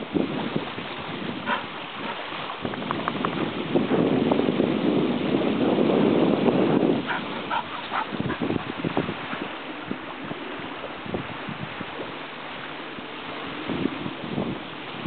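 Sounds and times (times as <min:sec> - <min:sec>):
steady breeze: 0:00.0 - 0:15.0
wind buffeting microphone: 0:00.0 - 0:15.0
dogs yipping: 0:07.1 - 0:08.5.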